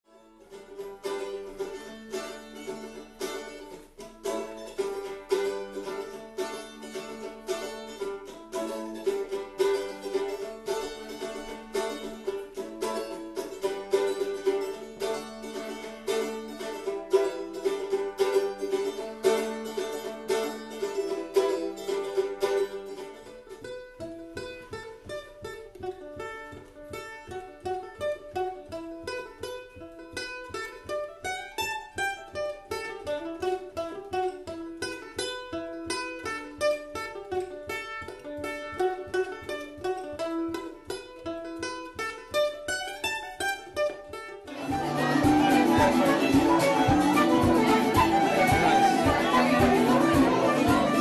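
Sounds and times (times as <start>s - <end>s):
plucked string tune: 0.0s - 51.0s.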